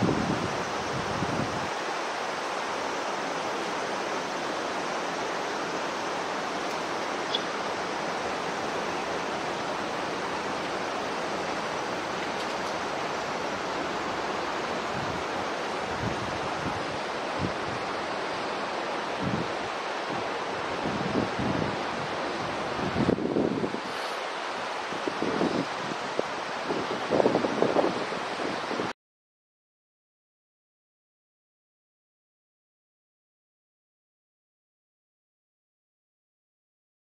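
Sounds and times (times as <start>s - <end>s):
running water hissing: 1.6s - 19.3s.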